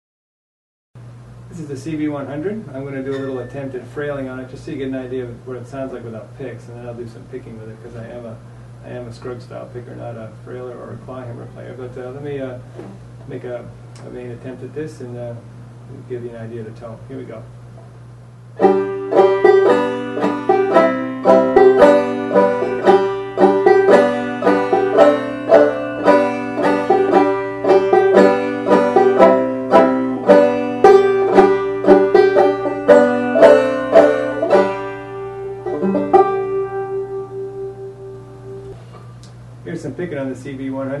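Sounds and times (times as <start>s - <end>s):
banjo plucked and strummed: 18.6s - 38.8s.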